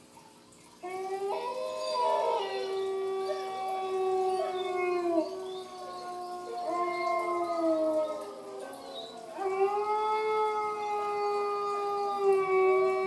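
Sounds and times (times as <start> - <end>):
dogs howling: 0.8 - 13.0.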